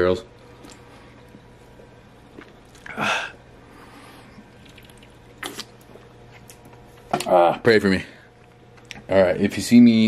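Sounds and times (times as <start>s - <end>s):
person gulping drink: 2.3s - 3.3s, 4.4s - 5.9s.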